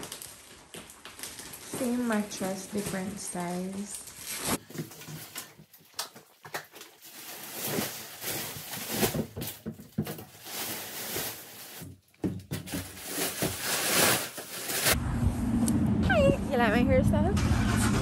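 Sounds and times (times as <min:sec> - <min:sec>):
plastic wrapping crinkling: 0:00.0 - 0:15.0
knocks and bumps of handling: 0:08.5 - 0:10.6, 0:11.7 - 0:13.6.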